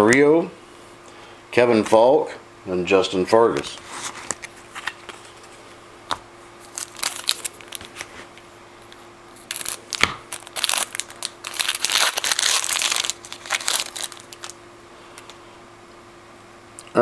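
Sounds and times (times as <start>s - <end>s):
wrapper tearing and crinkling: 6.6s - 8.1s, 9.4s - 14.6s.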